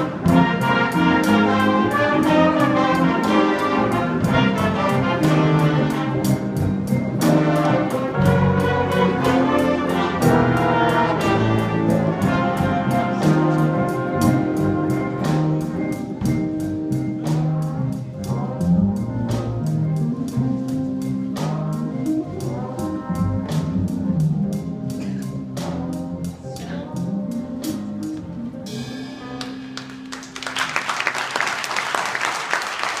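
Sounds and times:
jazz big band playing: 0.0 - 33.0
audience applause: 29.4 - 33.0.

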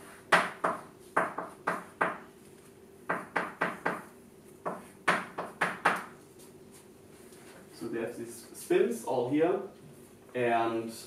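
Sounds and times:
chalk tapping on blackboard: 0.2 - 2.2, 3.1 - 6.2.

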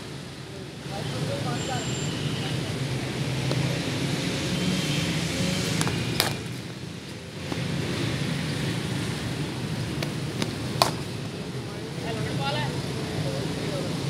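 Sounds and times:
cricket bat striking ball: 5.8 - 6.5, 10.0 - 11.3.

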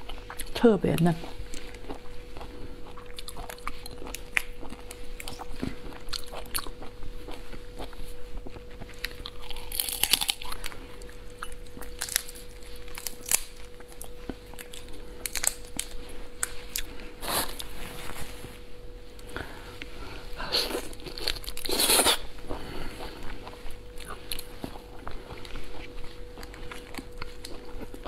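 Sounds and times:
biting and chewing: 1.2 - 17.7, 20.8 - 28.0
lobster shells cracking: 9.0 - 10.7, 11.8 - 14.0, 14.6 - 16.6.

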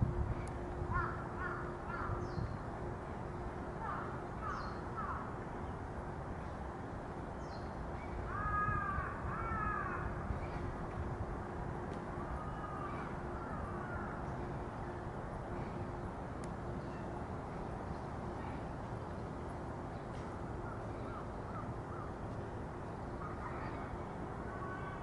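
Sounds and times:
faint steady hum: 0.0 - 25.0
crows cawing: 0.9 - 2.2, 8.3 - 10.1, 12.5 - 14.2.

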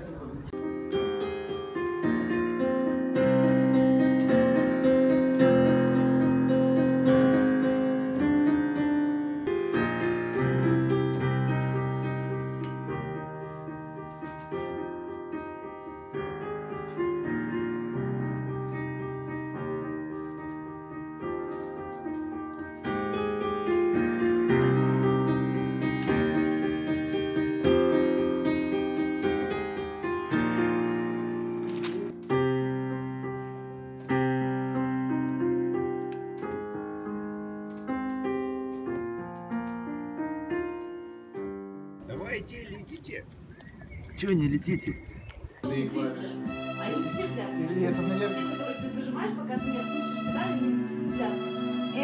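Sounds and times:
slow piano chords: 0.0 - 42.4, 45.6 - 52.0.

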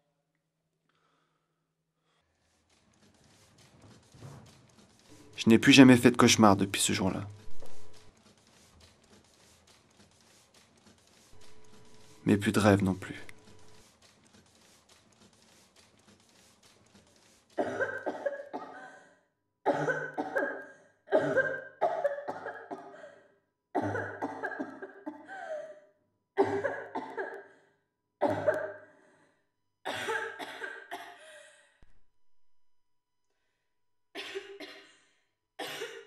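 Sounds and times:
man coughing: 19.7 - 23.0, 23.8 - 25.6, 28.2 - 28.8, 29.9 - 31.3.

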